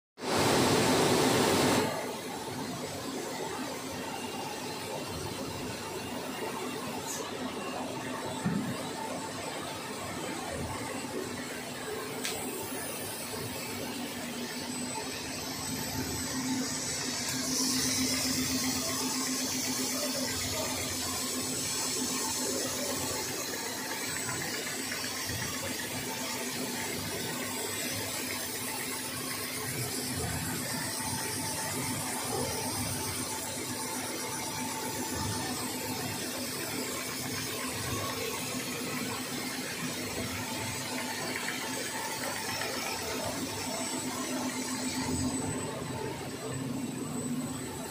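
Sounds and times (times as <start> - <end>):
machine whir with high whine: 0.2 - 47.9.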